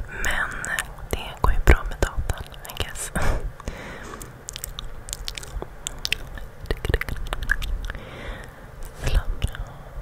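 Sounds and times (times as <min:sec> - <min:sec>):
lip and tongue clicks: 0:03.6 - 0:08.0.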